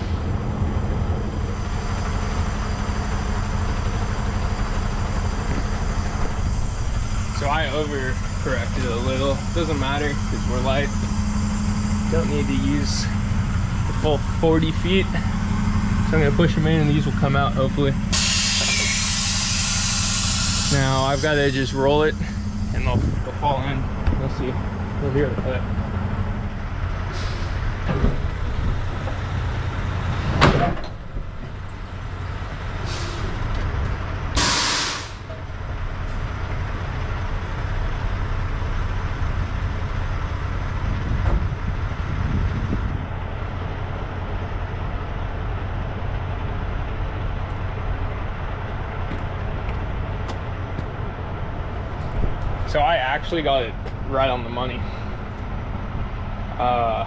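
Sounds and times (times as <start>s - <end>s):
diesel truck engine idling: 0.0s - 57.0s
air brake hiss: 18.1s - 21.4s, 27.1s - 27.6s, 32.8s - 33.4s, 34.4s - 35.3s
loud metal clunk: 30.2s - 31.0s.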